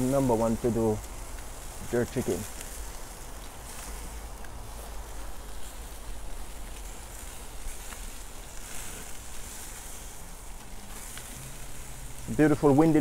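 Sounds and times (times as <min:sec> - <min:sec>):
meat sizzling on grill: 0:00.0 - 0:13.0.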